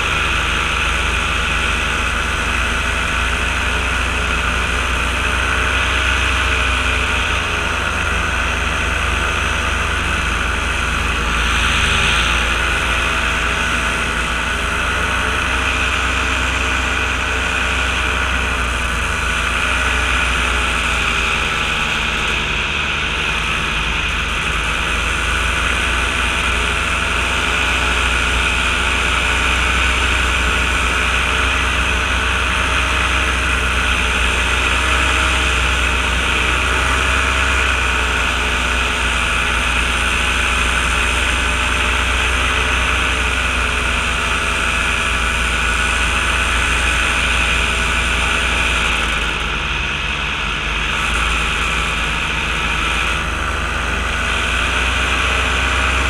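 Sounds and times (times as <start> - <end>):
small aircraft engine droning: 0.0 - 56.0.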